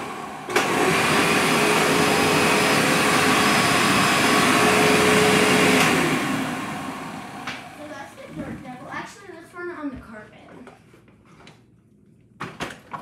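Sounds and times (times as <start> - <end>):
vacuum cleaner motor whine: 0.0 - 8.8.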